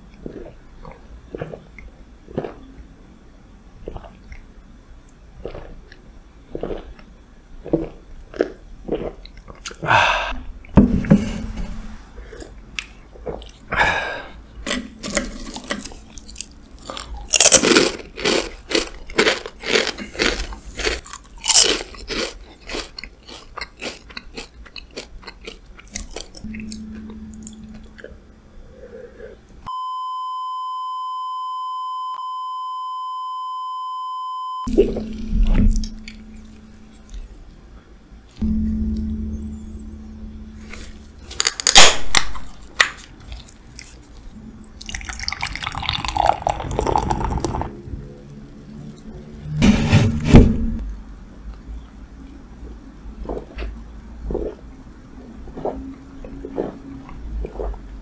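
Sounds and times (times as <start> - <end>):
crunching crisp snacks: 14.7 - 26.5, 40.8 - 44.3
gulping beer: 44.8 - 47.8.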